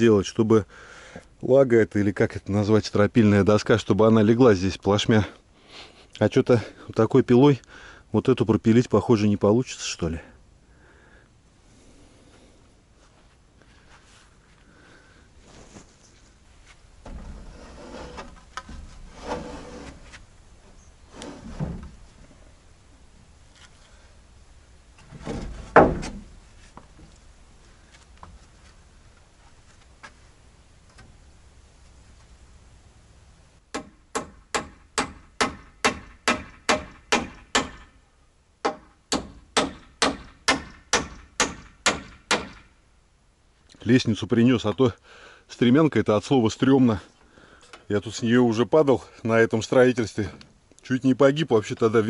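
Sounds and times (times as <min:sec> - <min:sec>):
wooden boards knocking and scraping: 0:25.0 - 0:27.1
hammer driving nails into wood: 0:33.7 - 0:37.9, 0:38.6 - 0:42.7.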